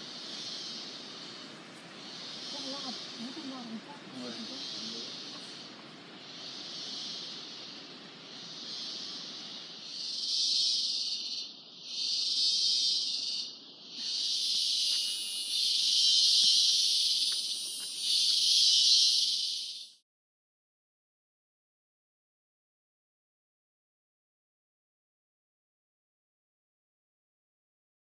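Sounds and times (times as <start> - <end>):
cicadas buzzing: 0.0 - 20.0.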